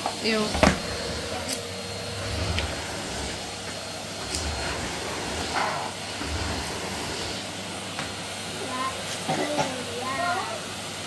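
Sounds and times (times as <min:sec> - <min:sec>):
vacuum cleaner running: 0:00.0 - 0:11.0.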